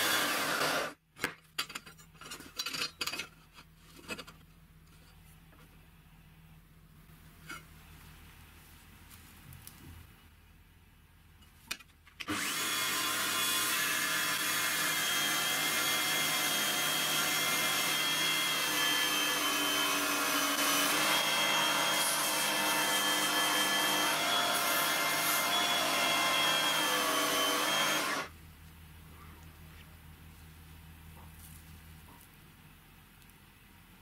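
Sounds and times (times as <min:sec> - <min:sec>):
belt grinder whine: 0:00.0 - 0:01.0, 0:12.2 - 0:28.3.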